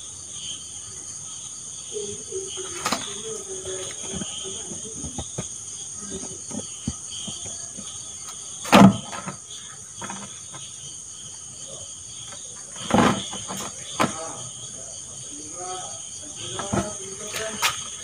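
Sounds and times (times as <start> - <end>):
crickets chirring: 0.0 - 18.0
handling noises: 2.0 - 10.7.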